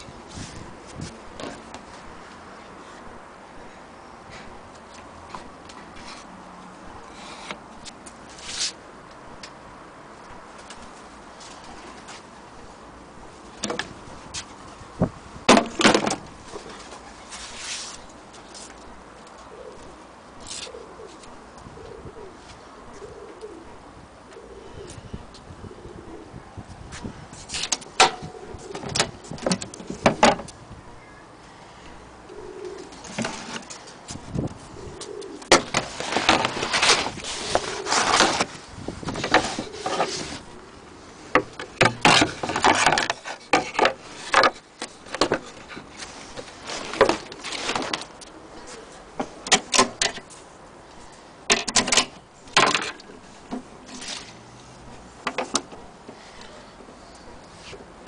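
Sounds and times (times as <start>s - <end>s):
pigeon cooing: 19.4s - 26.5s, 28.1s - 29.1s, 31.0s - 33.9s, 34.6s - 38.5s, 39.4s - 41.2s, 48.2s - 49.1s
objects knocking and rustling: 35.5s - 40.4s, 41.3s - 48.2s, 55.2s - 55.9s.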